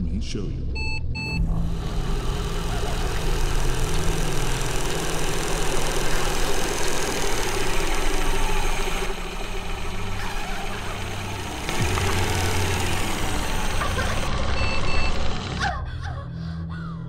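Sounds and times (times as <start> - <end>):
machine rumbling with deep hum: 0.7 - 17.0.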